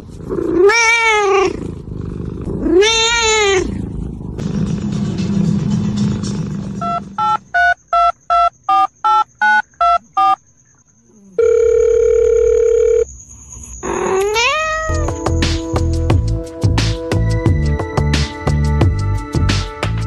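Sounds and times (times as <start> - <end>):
long steady phone tone: 6.8 - 10.4, 11.4 - 13.1
telephone keypad beeps: 7.2 - 10.4.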